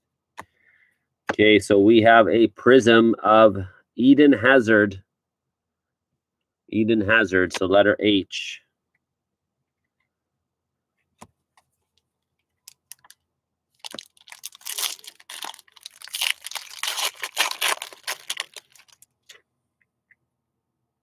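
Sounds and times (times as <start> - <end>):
foil wrapper tearing and crinkling: 13.8 - 19.0.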